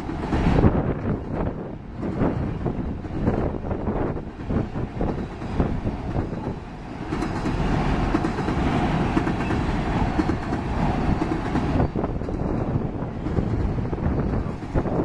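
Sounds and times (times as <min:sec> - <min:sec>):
train wheels clacking over rail joints: 0:04.3 - 0:15.0.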